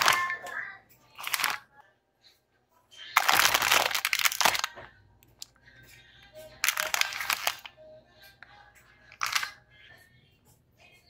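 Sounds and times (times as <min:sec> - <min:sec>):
plastic bag crinkling: 0:00.0 - 0:00.4, 0:01.1 - 0:01.7, 0:03.1 - 0:04.9, 0:06.6 - 0:07.7, 0:09.2 - 0:09.6.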